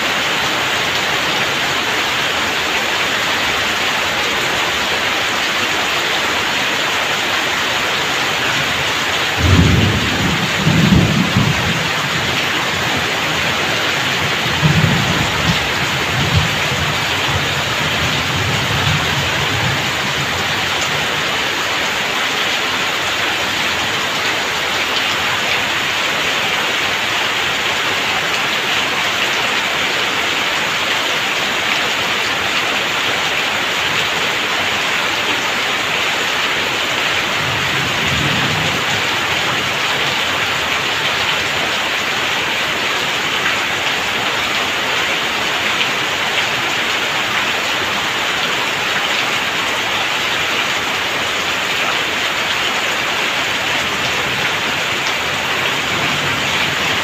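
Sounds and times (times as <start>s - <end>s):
rain pouring off roof: 0.0s - 57.0s
thunder rumbling: 8.7s - 21.3s, 37.2s - 40.8s.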